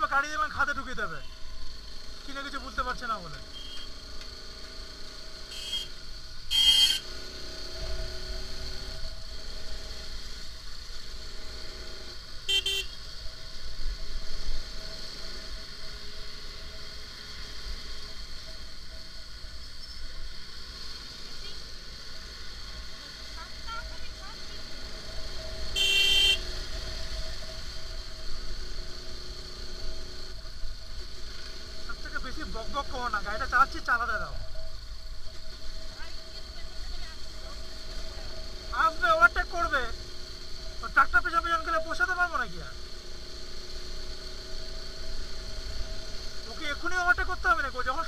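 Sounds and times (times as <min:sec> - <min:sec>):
motorcycle engine running: 0:00.0 - 0:48.0
vehicle horn honks: 0:03.5 - 0:04.0, 0:05.5 - 0:07.1, 0:12.5 - 0:13.0, 0:25.7 - 0:26.6.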